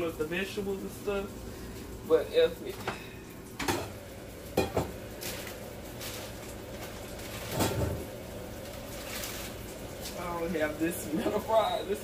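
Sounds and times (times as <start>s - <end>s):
dishes and utensils clinking: 4.6s - 5.0s.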